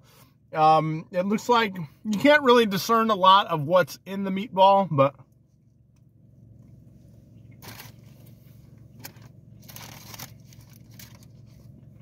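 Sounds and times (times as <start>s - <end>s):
sandwich tearing and rustling: 7.6s - 12.0s.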